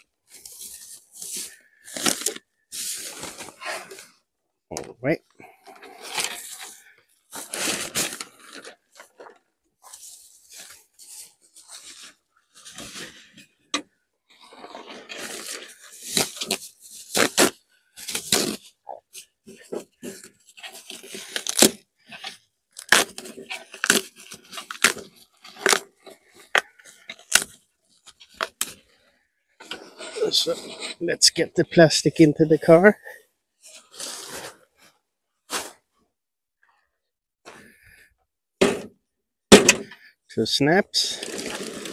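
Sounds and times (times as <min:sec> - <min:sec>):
plastic wrapping crinkling: 0:41.1 - 0:41.9.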